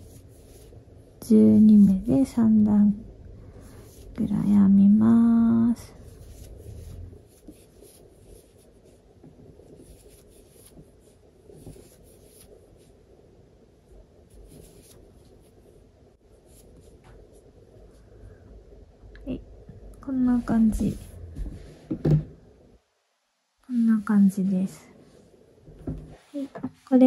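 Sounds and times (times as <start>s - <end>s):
crochet hook rubbing yarn: 0.0s - 2.9s, 3.7s - 12.9s, 14.3s - 17.5s.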